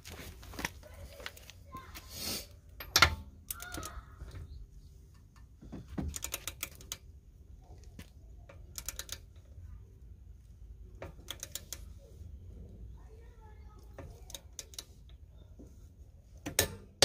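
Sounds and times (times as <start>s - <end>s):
metal socket clanking onto nut: 2.8s - 3.8s
wrench ratchet clicking: 6.1s - 7.0s, 8.6s - 9.4s, 11.0s - 11.8s, 14.3s - 14.9s.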